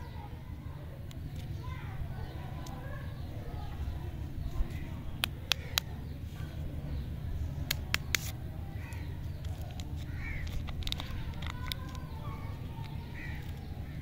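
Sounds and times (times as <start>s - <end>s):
plastic wrapper crinkling: 9.4s - 13.7s.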